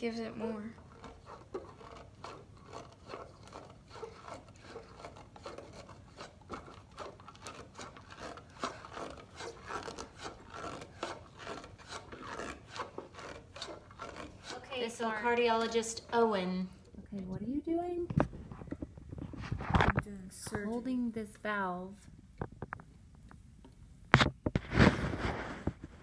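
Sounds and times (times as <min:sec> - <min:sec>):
balloon rubbing and scraping: 0:00.0 - 0:16.9, 0:18.1 - 0:20.0, 0:24.2 - 0:26.0.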